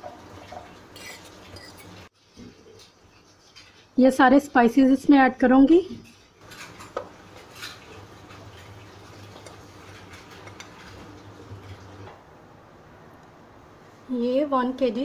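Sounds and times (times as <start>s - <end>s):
metal spoon scraping a plate: 0.9s - 2.0s.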